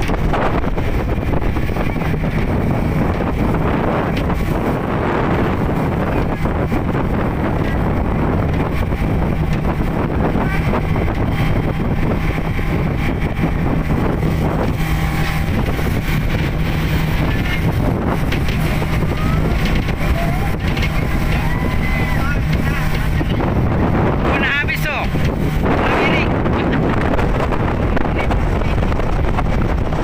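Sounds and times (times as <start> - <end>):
speedboat engine running: 0.0 - 30.0
wind buffeting microphone: 0.0 - 30.0.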